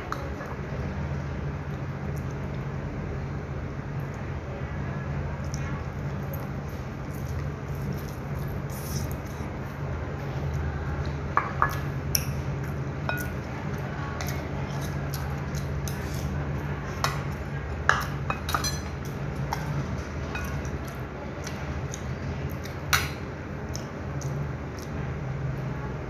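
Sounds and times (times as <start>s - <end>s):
steady low hum: 0.0s - 26.0s
utensils clinking on porcelain bowls: 13.1s - 13.5s, 17.0s - 19.7s, 20.3s - 21.0s.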